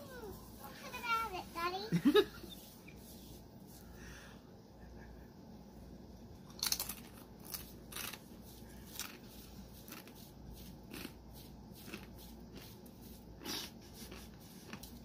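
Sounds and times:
tortilla chip crunching: 6.5s - 10.2s, 10.8s - 12.7s, 13.4s - 15.0s.

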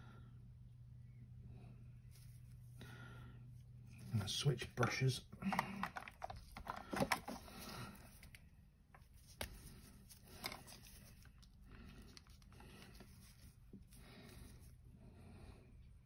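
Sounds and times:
brushes and pot handling noise: 6.3s - 14.8s.

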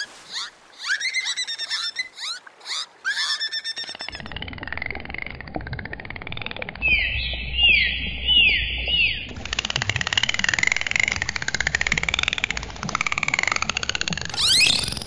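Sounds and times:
dolphin whistles: 0.0s - 4.2s, 14.3s - 15.0s
dolphin clicks: 9.3s - 15.0s
short falling chirps: 14.3s - 15.0s.

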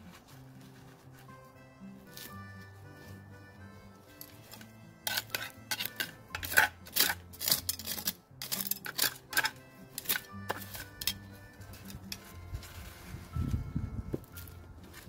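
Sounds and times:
metal trowel scraping soil in pot: 4.2s - 13.6s.

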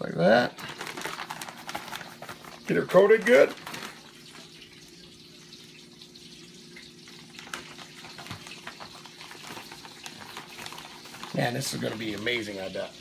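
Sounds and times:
plastic bag crinkling: 0.2s - 4.6s, 7.1s - 13.0s
fish sizzling in hot oil: 2.6s - 11.5s.

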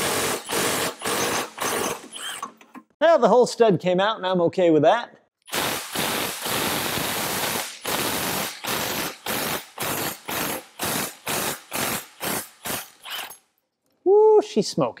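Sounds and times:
impact gun running: 5.5s - 13.4s.

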